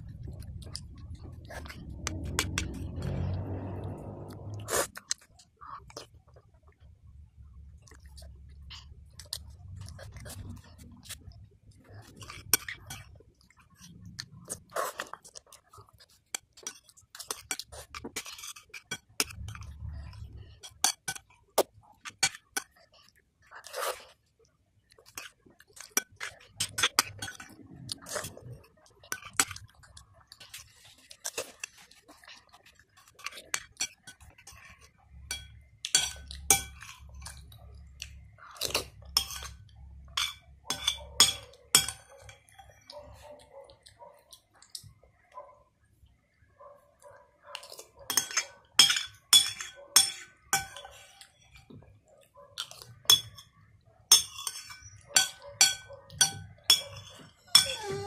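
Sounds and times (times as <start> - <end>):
child chewing: 0.0 - 6.6, 7.7 - 46.0, 46.6 - 58.0
metal spoon clinking on ceramic bowl: 35.3 - 37.0, 39.1 - 42.8, 48.1 - 51.0, 53.1 - 58.0.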